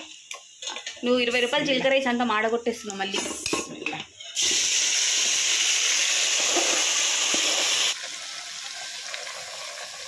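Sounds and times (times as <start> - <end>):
vegetables sizzling in hot oil: 0.0 - 3.5, 4.1 - 10.0.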